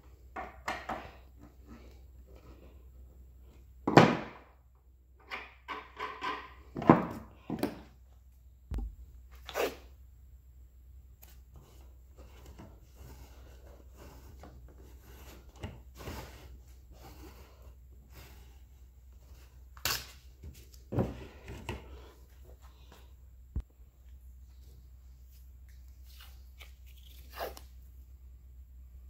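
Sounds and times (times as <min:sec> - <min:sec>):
steady low hum: 0:07.2 - 0:27.0.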